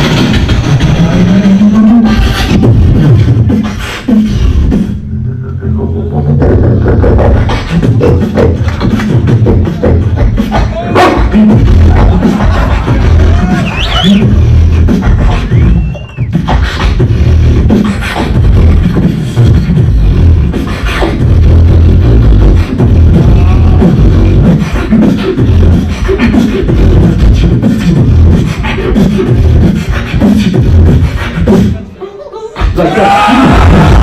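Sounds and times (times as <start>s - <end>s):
beatboxing into a microphone: 0.0s - 34.0s
sliding whistle-like tone: 13.6s - 14.3s, 15.3s - 16.4s.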